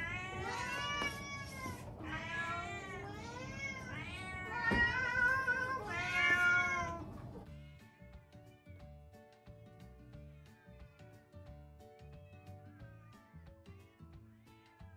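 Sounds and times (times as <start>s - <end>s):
cats meowing: 0.0s - 7.5s
music: 0.0s - 14.9s.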